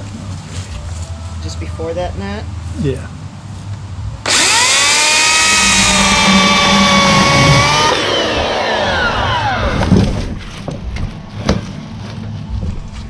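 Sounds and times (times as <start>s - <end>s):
electric chainsaw whining: 4.2s - 10.1s.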